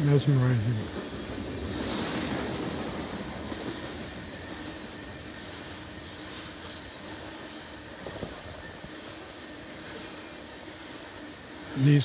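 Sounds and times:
train wheels on rail: 0.0 - 12.0.

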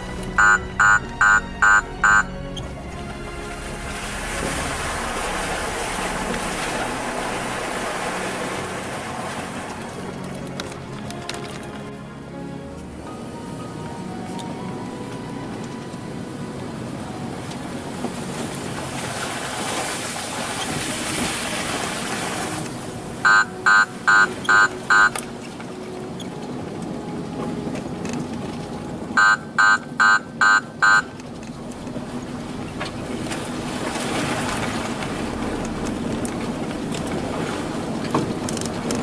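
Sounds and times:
off-road vehicle engine and tyres: 0.0 - 39.0
short loud beeps: 0.4 - 2.3, 23.3 - 25.2, 29.2 - 31.1.

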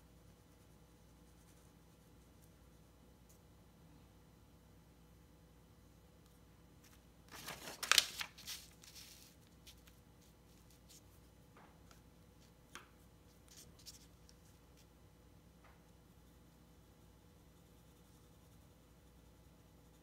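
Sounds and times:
paper rustling: 6.8 - 11.2.

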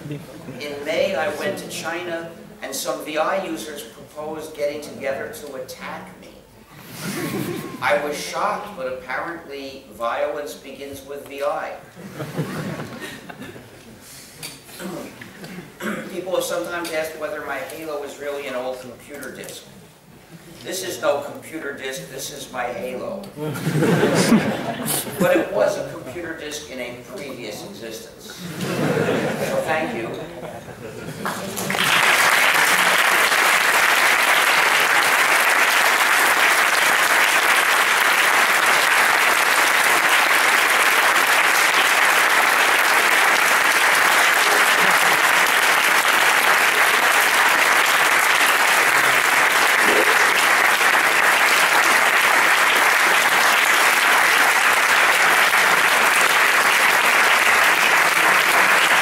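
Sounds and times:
crowd applauding: 31.2 - 59.0.

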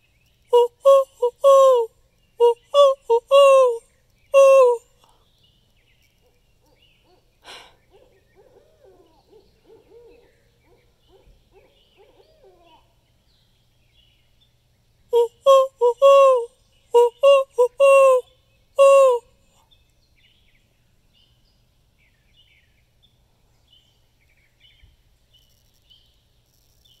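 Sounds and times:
owl hooting: 0.5 - 3.8, 4.4 - 4.8, 7.0 - 12.9, 15.2 - 18.2, 18.8 - 19.2.

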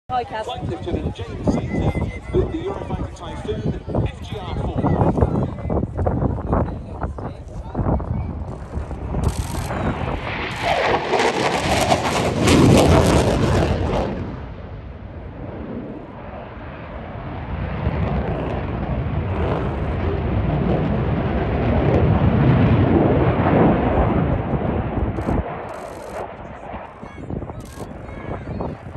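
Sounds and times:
fighter jet roaring past: 8.3 - 28.9.

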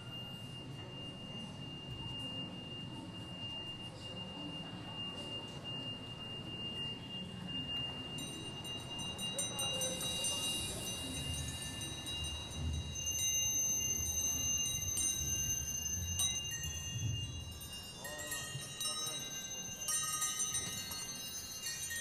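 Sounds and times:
low noisy background: 0.0 - 22.0
steady high tone: 0.0 - 22.0
bright shimmer: 8.1 - 22.0.

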